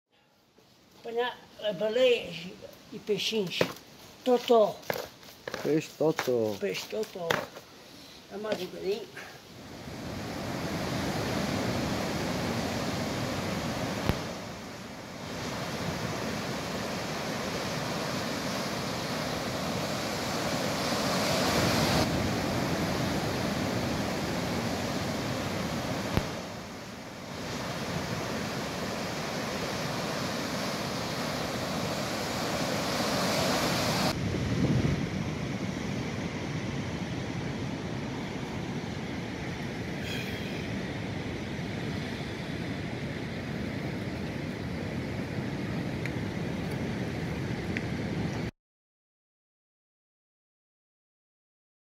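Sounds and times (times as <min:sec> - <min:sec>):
sea surf: 0:06.7 - 0:48.5
wind on microphone: 0:27.3 - 0:48.5.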